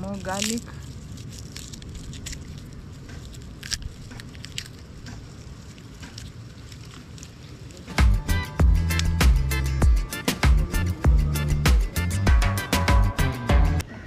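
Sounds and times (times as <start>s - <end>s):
garlic skin crackling: 0.0s - 9.8s
low steady rumble: 0.0s - 13.9s.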